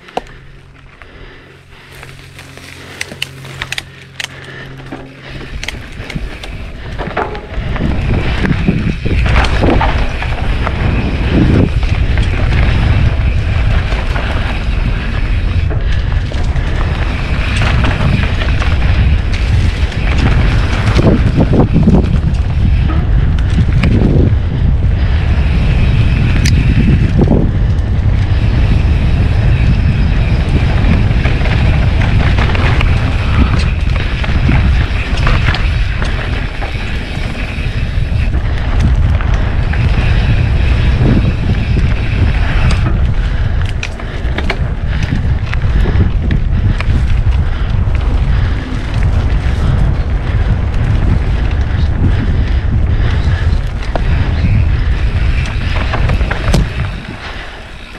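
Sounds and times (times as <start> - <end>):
tyres on dirt: 0.0 - 57.9
wind buffeting microphone: 0.0 - 57.9
bike knocks and rattles: 1.9 - 57.9.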